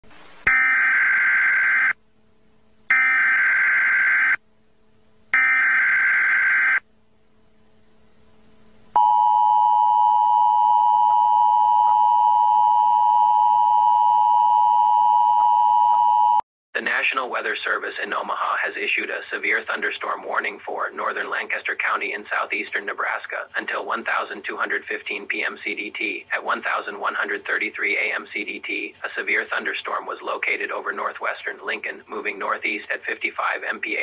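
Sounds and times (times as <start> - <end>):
two-tone attention signal: 9.0 - 16.4.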